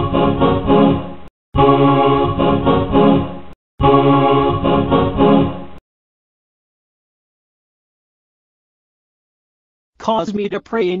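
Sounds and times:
organ music loop: 0:00.0 - 0:05.8.

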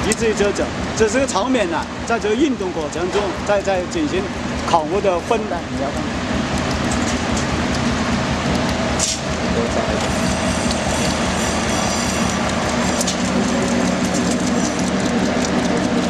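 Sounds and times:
sharp click: 0:06.5 - 0:09.4.

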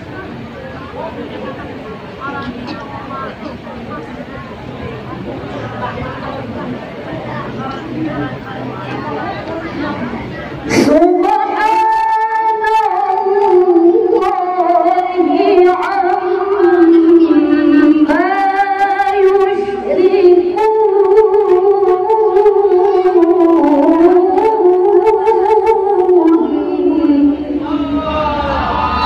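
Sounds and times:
woman reciting melodically: 0:07.2 - 0:28.2.

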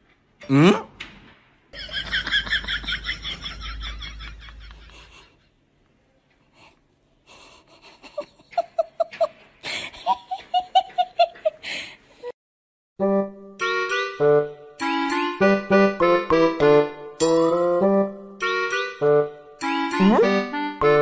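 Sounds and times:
person laughing: 0:01.8 - 0:05.5, 0:07.3 - 0:11.6.

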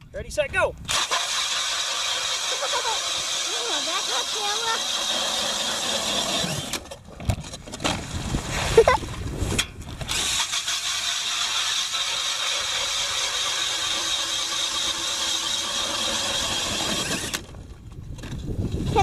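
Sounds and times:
drill motor whining: 0:00.9 - 0:07.0, 0:10.1 - 0:17.5
auger grinding through ice: 0:00.9 - 0:19.0.

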